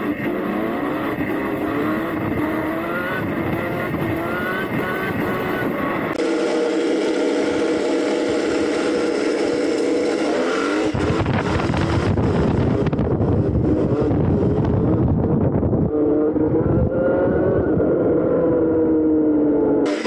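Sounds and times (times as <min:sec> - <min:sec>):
wind rumble on microphone: 0:00.0 - 0:06.2, 0:10.8 - 0:19.2
electric motorbike whine: 0:00.0 - 0:20.0.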